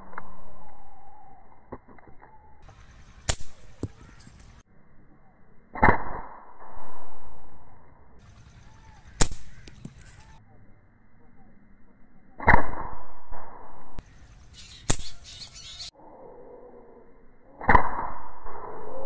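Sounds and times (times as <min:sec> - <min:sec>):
air rifle shots: 0:03.2 - 0:04.1, 0:09.2 - 0:10.0, 0:14.8 - 0:15.3.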